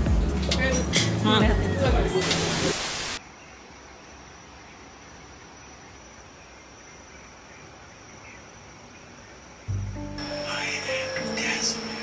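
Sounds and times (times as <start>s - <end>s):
loud music: 0.0s - 2.7s
insects chirring: 3.2s - 12.0s.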